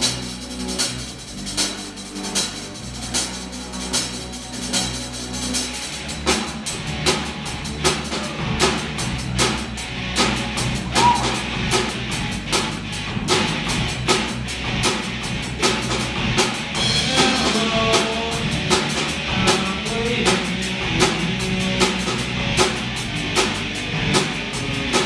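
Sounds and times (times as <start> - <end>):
drum kit beat: 0.0 - 25.0
electric guitars: 0.0 - 25.0.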